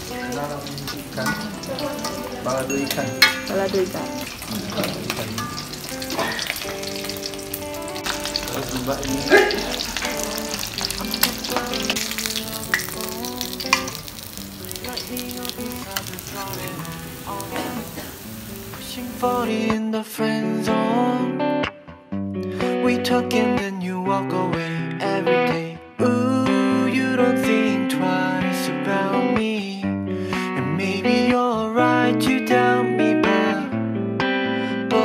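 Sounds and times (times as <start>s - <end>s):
fish sizzling in hot oil: 0.0s - 19.5s
metal spatula knocking on pan: 3.2s - 3.6s.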